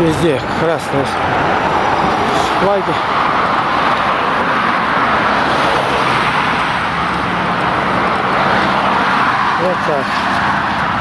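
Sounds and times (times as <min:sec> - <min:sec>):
road traffic roar: 0:00.0 - 0:11.0.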